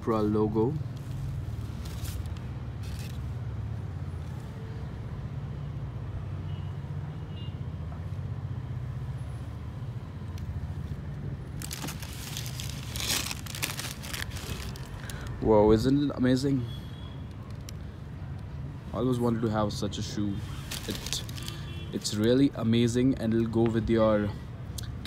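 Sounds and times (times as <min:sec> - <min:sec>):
tissue paper crackling and rustling: 0:01.1 - 0:03.2, 0:11.6 - 0:15.3, 0:20.5 - 0:21.6.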